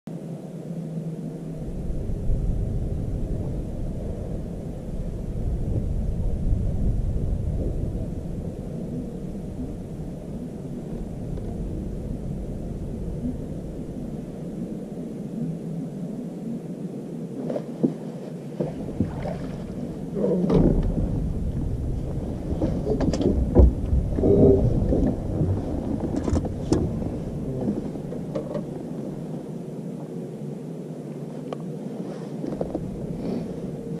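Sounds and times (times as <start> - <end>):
wind rumbling on microphone: 0.1 - 34.0
knocks and scuffs on boat deck: 22.1 - 24.2.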